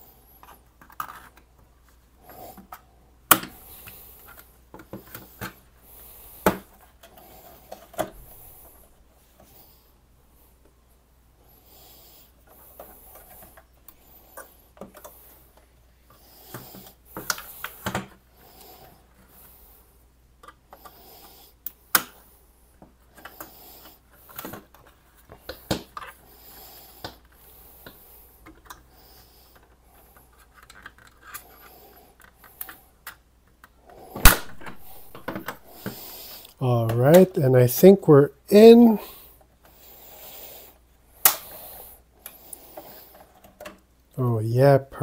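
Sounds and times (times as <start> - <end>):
screwdriver scraping plastic case: 29.5 - 32.8.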